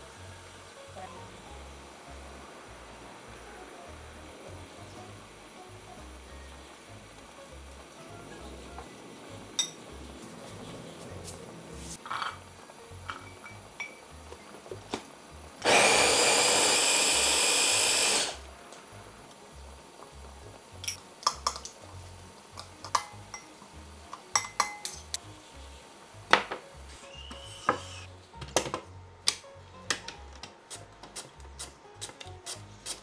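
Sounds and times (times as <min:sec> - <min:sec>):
spoons clinking on glass bowl: 0:09.6 - 0:09.8, 0:13.1 - 0:14.0, 0:22.8 - 0:23.5, 0:24.3 - 0:25.1
electric mini chopper running: 0:15.6 - 0:18.4.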